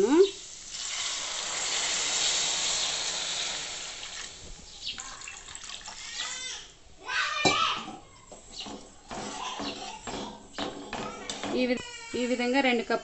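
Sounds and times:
water gushing into hot pan: 0:00.0 - 0:06.5.

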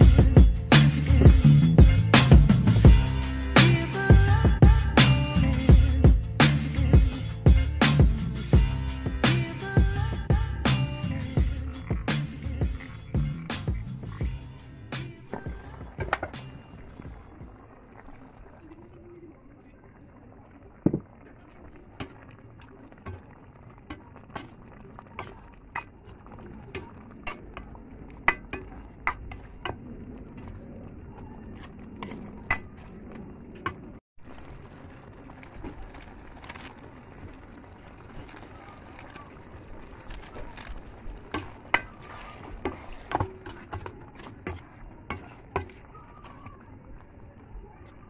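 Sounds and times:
metal spoon scraping a pan: 0:41.4 - 0:45.9.

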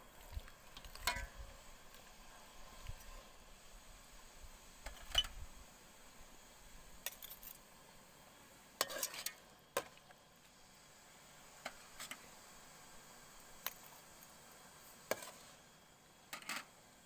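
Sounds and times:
ladle stirring broth: 0:00.1 - 0:03.2, 0:08.8 - 0:10.2.

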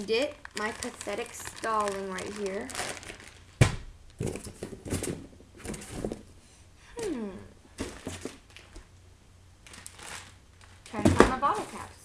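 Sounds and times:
plastic bags rustling: 0:00.0 - 0:06.4, 0:07.7 - 0:08.8, 0:09.6 - 0:12.0
falling hum of voice: 0:06.9 - 0:07.6.

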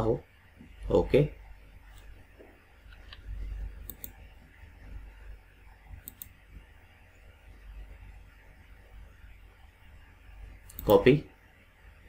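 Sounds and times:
low background rumble: 0:00.7 - 0:10.8
computer mouse double-clicks: 0:03.8 - 0:04.2, 0:06.0 - 0:06.3.

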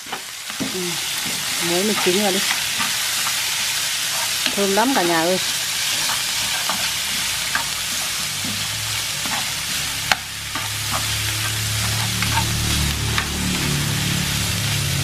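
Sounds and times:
food sizzling in frying pan: 0:00.0 - 0:15.0
chopsticks tapping pan: 0:00.1 - 0:03.4, 0:06.0 - 0:13.4.

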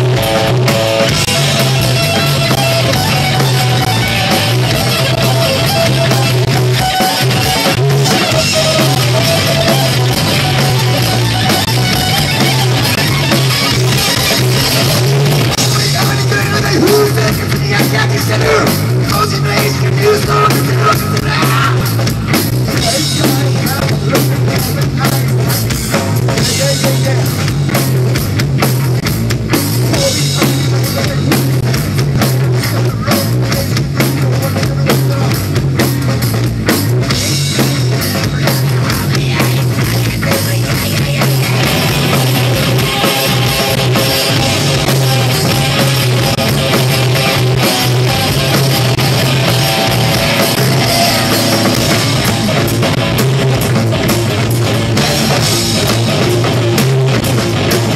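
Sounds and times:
bass guitar: 0:00.0 - 0:57.9
driving drum beat: 0:00.0 - 0:57.9
electric guitar: 0:00.0 - 0:57.9.

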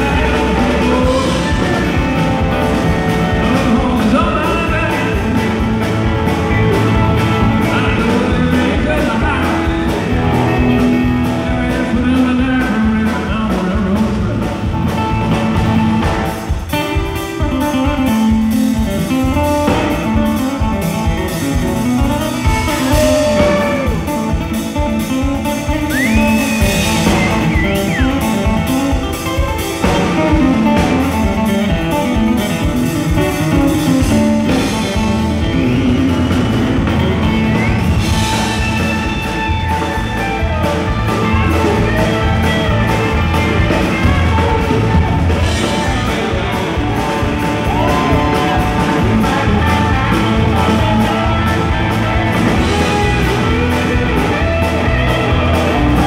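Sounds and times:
male lead vocal: 0:00.0 - 0:16.0, 0:22.1 - 0:29.0, 0:43.7 - 0:56.0
live country band playing: 0:00.0 - 0:56.0
pedal steel guitar: 0:00.0 - 0:56.0.

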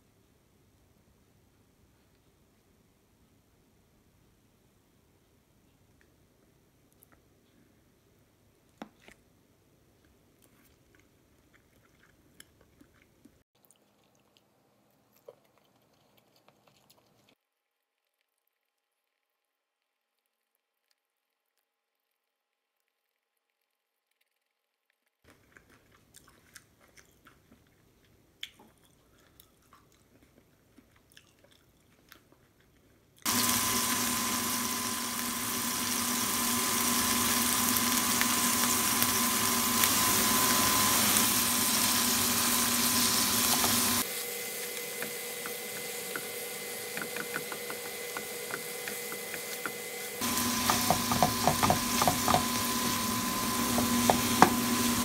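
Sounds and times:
chewing: 0:10.0 - 0:33.3
tofu sizzling in oil: 0:33.3 - 0:55.0.

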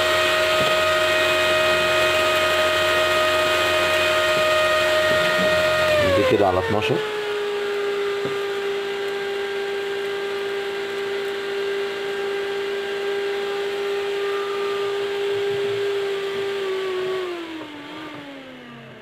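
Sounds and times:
cooling fan whining: 0:00.0 - 0:19.0.

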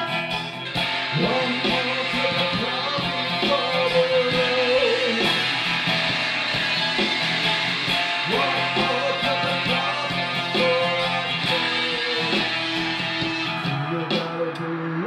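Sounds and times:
man singing long notes: 0:00.0 - 0:05.6, 0:08.1 - 0:13.0, 0:13.6 - 0:15.0
acoustic guitar strumming: 0:00.0 - 0:15.0.

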